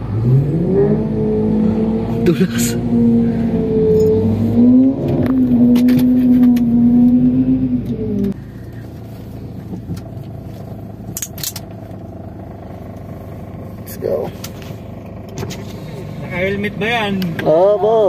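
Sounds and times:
car engine revving high: 0:00.0 - 0:08.4
low engine rumble: 0:00.0 - 0:18.0.

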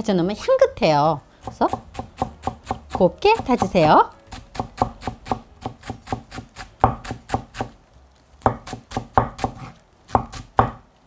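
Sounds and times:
knife chopping on cutting board: 0:01.4 - 0:07.8, 0:08.4 - 0:10.8.

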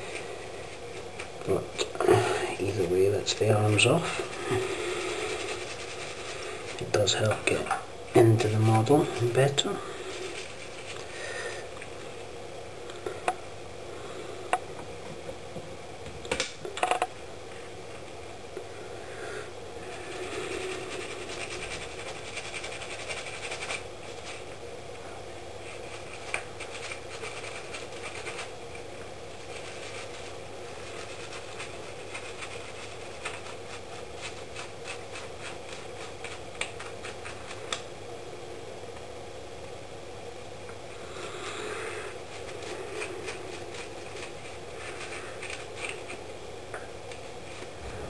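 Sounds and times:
steady background hum: 0:00.0 - 0:48.0
toothbrush scrubbing plastic: 0:02.6 - 0:12.3, 0:19.8 - 0:24.6, 0:25.6 - 0:37.8, 0:41.2 - 0:46.3.

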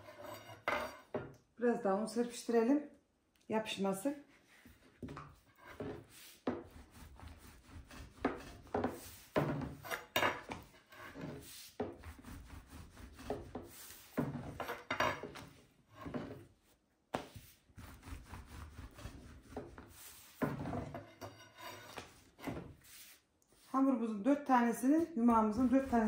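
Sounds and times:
rolling pin on wooden board: 0:04.7 - 0:16.5, 0:17.1 - 0:23.1, 0:25.2 - 0:26.0.

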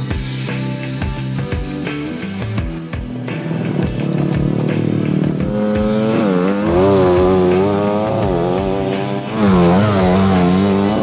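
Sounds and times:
dirt bike engine revving: 0:03.1 - 0:11.0.

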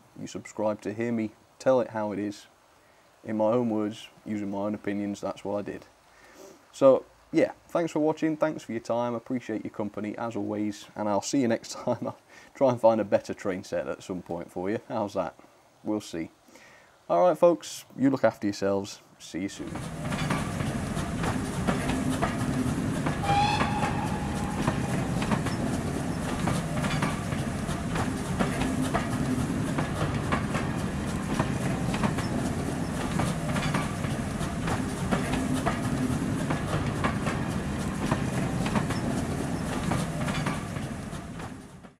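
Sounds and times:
passenger train passing: 0:19.5 - 0:41.9
wheels clacking over rail joints: 0:19.6 - 0:42.0
high whistle note: 0:23.2 - 0:25.7.

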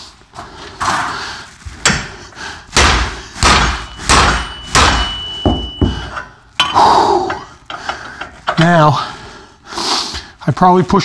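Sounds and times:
sledgehammer striking metal: 0:01.8 - 0:06.9.

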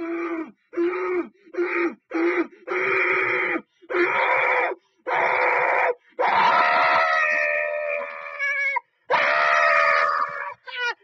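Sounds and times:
person screaming: 0:02.7 - 0:11.0.

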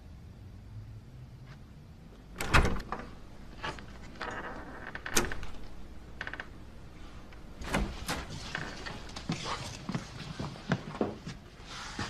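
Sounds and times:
door thud: 0:02.4 - 0:03.2
door handle and latch rattling: 0:02.4 - 0:06.6.

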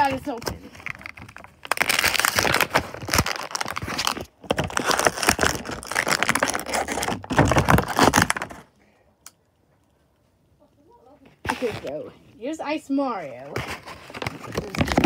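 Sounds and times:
plastic packaging crinkling: 0:00.0 - 0:08.8, 0:13.4 - 0:15.0.

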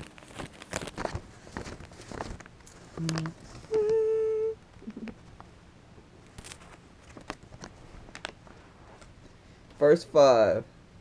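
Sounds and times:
person humming: 0:03.0 - 0:05.2.

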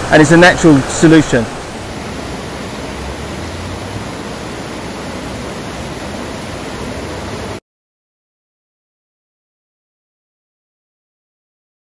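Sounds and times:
stream rushing over rocks: 0:00.0 - 0:07.6.

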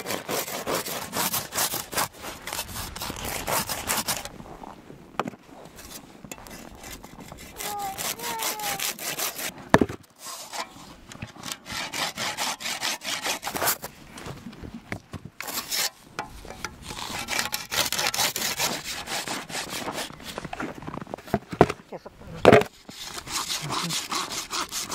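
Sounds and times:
hand saw cutting wood: 0:00.0 - 0:04.3, 0:05.8 - 0:09.5, 0:10.2 - 0:13.9, 0:15.4 - 0:20.5, 0:22.5 - 0:24.9.

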